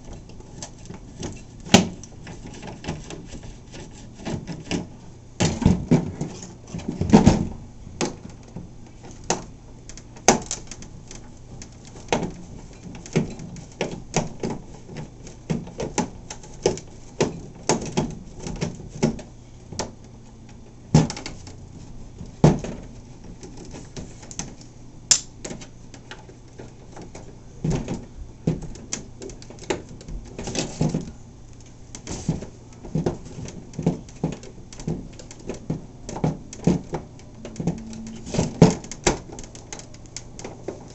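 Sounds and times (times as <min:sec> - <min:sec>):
steady low hum: 0:00.0 - 0:40.9
hand tools clicking on plastic: 0:22.2 - 0:40.9.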